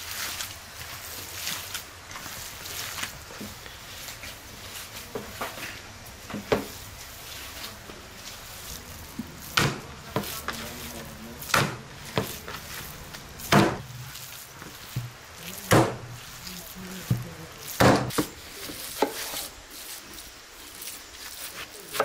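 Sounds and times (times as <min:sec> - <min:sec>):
wet slaps of minced meat: 0:09.5 - 0:10.7, 0:11.4 - 0:16.0.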